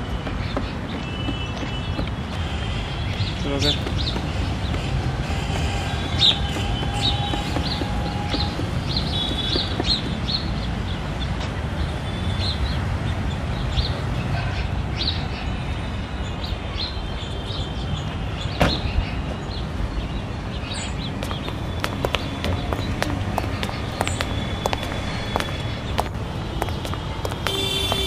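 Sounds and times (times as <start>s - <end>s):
low traffic rumble: 0.0s - 28.0s
birds chirping: 2.9s - 11.4s, 16.8s - 28.0s.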